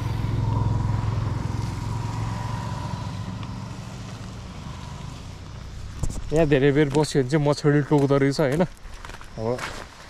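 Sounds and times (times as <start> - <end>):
motorcycle engine running: 0.0 - 6.9.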